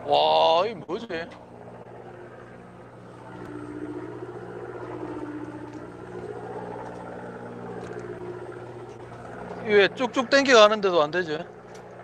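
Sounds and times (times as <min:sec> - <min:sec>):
boat motor humming: 0:00.0 - 0:12.0
wavering high tone: 0:03.1 - 0:08.9.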